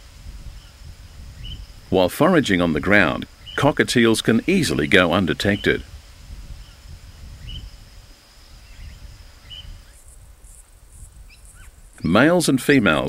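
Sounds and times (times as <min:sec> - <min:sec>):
high insect drone: 0:00.0 - 0:13.0
low wind rumble: 0:00.0 - 0:13.0
faint bird chirps: 0:00.5 - 0:01.8, 0:06.6 - 0:10.6, 0:11.2 - 0:12.2.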